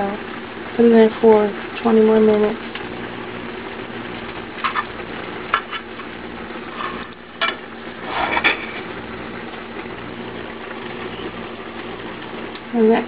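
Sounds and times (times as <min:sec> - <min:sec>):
metal utensil scraping a dish: 0:06.7 - 0:08.8.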